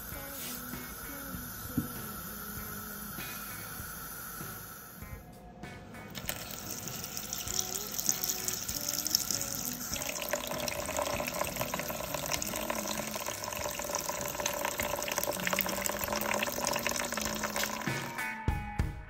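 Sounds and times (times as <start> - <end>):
tap water running into bowl: 0.0 - 3.1, 6.1 - 18.2.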